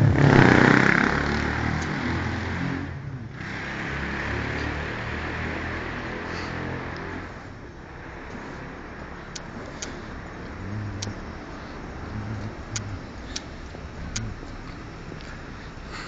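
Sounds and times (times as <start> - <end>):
passing traffic: 0.0 - 16.0
sharp clicks: 9.3 - 15.3.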